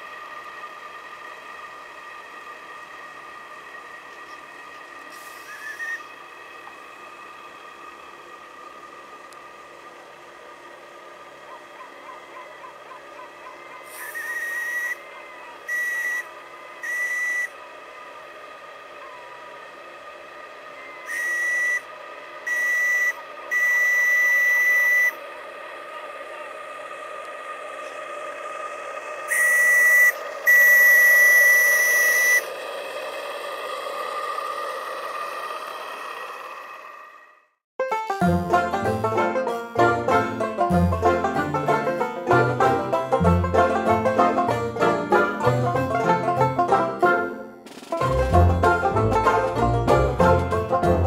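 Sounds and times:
steam hissing: 0:00.0 - 0:11.4, 0:13.8 - 0:37.4
steam whistle blasts: 0:05.1 - 0:06.1, 0:13.9 - 0:15.0, 0:15.7 - 0:17.6, 0:20.8 - 0:25.2, 0:29.3 - 0:32.5.

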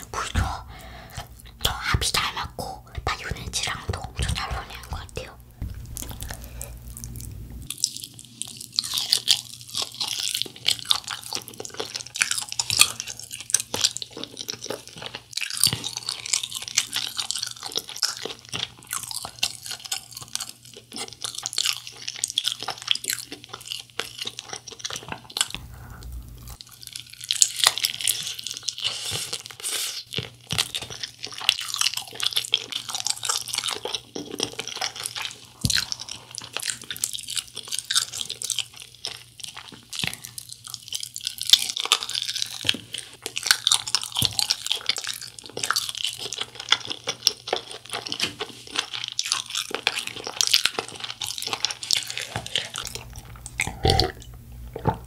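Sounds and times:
wet chewing: 0:03.4 - 0:55.0
crunchy fried chicken crackling: 0:05.8 - 0:54.1.

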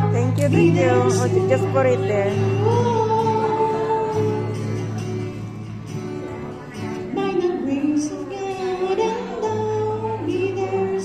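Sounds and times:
woman singing into microphone: 0:00.0 - 0:04.7, 0:07.1 - 0:11.0
acoustic guitar: 0:00.0 - 0:11.0.

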